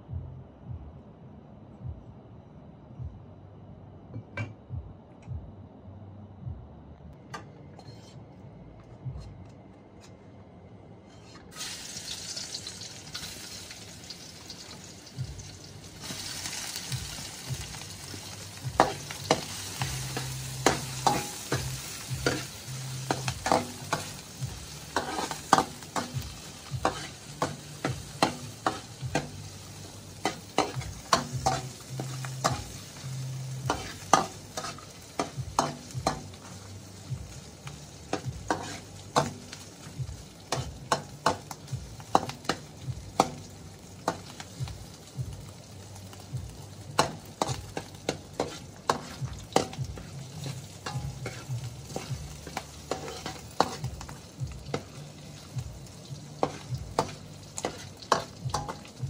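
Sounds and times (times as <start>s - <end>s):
metal ladle scraping wok: 7.8s - 8.2s, 24.8s - 33.0s, 33.6s - 36.6s, 38.2s - 39.4s, 47.4s - 53.9s
food sizzling in wok: 11.5s - 59.0s.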